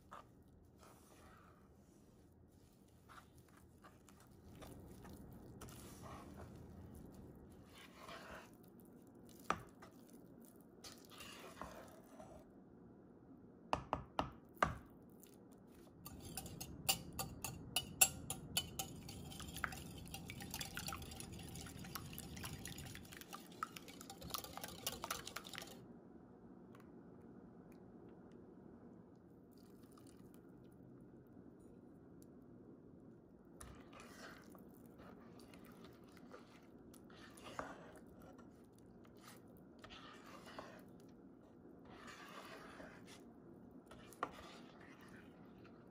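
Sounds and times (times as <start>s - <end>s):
batter stirred and scraped in pot: 0.0s - 12.6s, 15.2s - 25.8s, 33.5s - 45.9s
utensil tapping pot: 16.1s - 22.8s, 23.5s - 25.8s.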